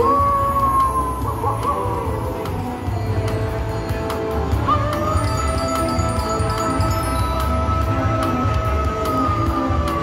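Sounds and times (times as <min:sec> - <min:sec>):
slot machine electronic music: 0:01.7 - 0:08.2.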